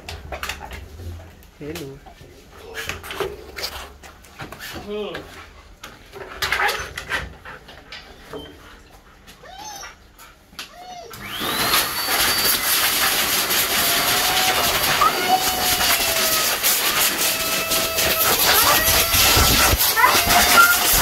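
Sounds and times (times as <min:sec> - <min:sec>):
electric blower whining: 0:11.1 - 0:21.0.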